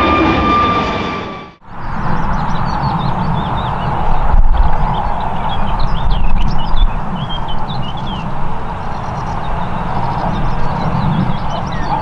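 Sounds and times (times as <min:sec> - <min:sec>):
distant jet engines rumbling: 0:00.0 - 0:12.0
small birds chirping: 0:04.8 - 0:12.0.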